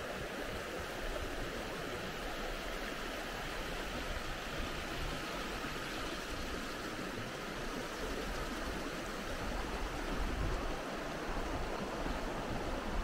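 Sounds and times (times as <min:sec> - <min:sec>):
meltwater stream flowing: 0:00.0 - 0:13.0.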